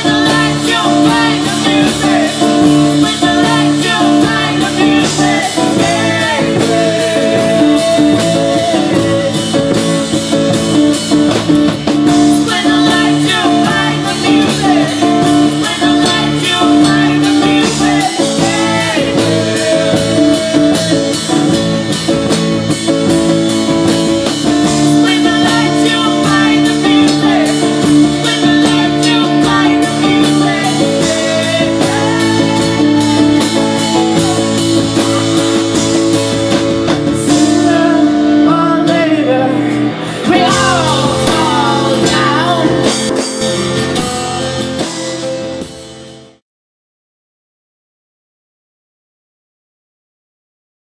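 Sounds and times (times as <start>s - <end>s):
woman singing: 0.0s - 9.4s, 12.3s - 21.3s, 25.0s - 34.7s, 37.3s - 43.1s
steady beat: 0.0s - 37.8s
electric bass: 0.0s - 46.4s
second guitar: 0.0s - 46.4s.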